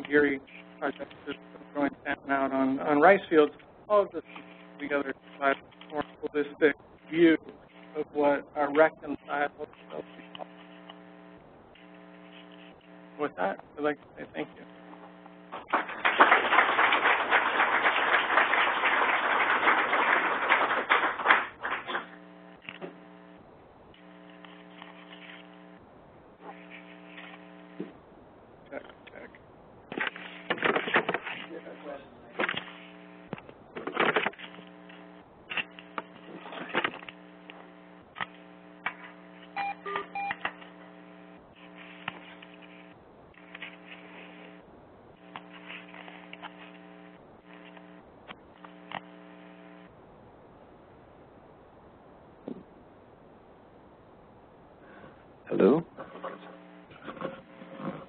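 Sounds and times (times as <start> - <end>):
steady electrical hum: 0.0 - 58.0
audience applauding: 15.5 - 22.1.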